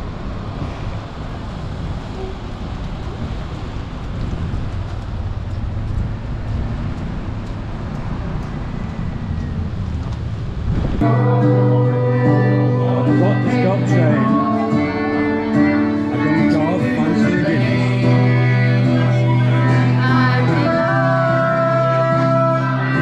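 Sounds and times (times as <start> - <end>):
wind on microphone: 0.0 - 11.1
road traffic rumble: 0.0 - 23.0.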